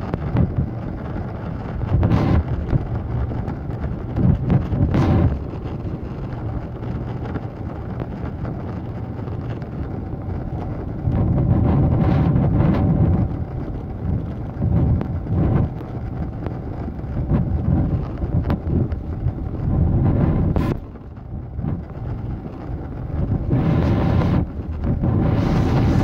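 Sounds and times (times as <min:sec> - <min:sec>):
rumble of airframe and wheels: 0:00.0 - 0:26.0.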